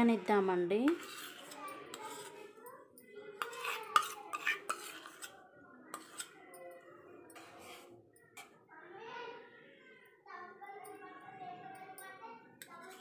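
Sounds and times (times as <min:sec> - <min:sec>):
spoon scraping steel bowl: 0:00.0 - 0:08.6, 0:12.6 - 0:13.0.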